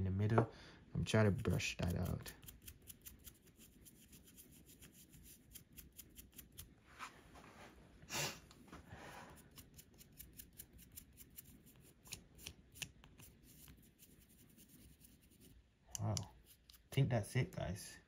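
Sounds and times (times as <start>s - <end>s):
small brush scrubbing scratchy ticks: 1.1s - 6.7s, 9.4s - 17.0s.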